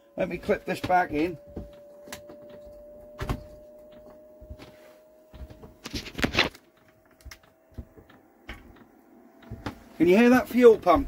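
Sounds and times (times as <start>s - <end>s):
heater fan motor whine: 0.0s - 11.0s
handling clicks and knocks: 0.4s - 4.6s, 5.3s - 9.8s.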